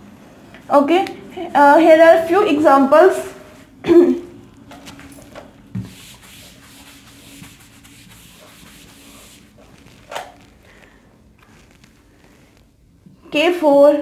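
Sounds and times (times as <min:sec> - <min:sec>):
eraser scrubbing whiteboard: 0:05.7 - 0:10.7.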